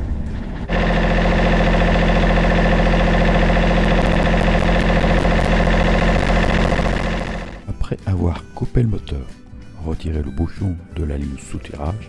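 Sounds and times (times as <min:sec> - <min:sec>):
diesel engine idling: 0:00.7 - 0:07.6.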